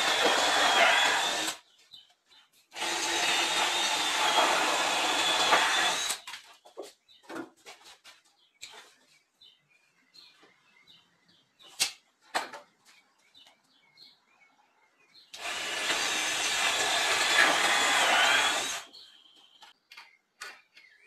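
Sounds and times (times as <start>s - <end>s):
power drill drilling into wood: 0.0s - 1.6s, 2.8s - 6.2s, 15.4s - 18.9s.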